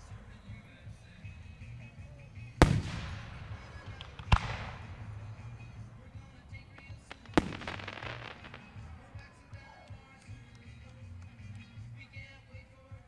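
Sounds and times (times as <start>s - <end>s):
firework shells bursting with bangs: 2.6s - 9.1s.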